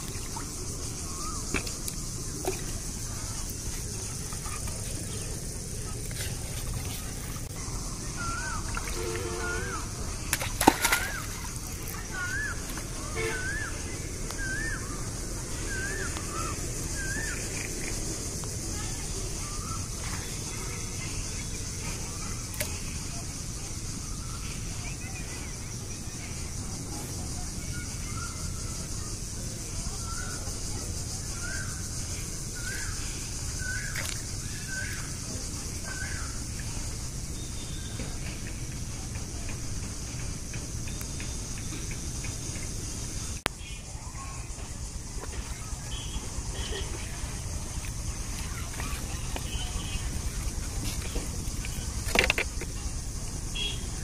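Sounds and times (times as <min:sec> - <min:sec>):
water splashes: 0:00.0 - 0:18.1.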